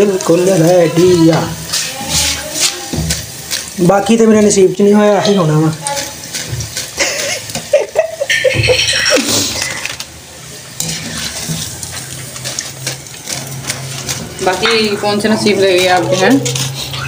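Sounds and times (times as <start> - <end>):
hot oil sizzling: 0.0 - 17.0
metal clinking on pan: 5.2 - 10.0.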